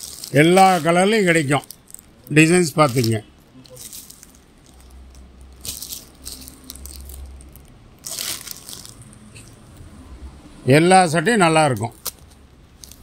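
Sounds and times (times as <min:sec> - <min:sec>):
plastic packets crinkling: 0:00.0 - 0:09.5, 0:11.7 - 0:13.0.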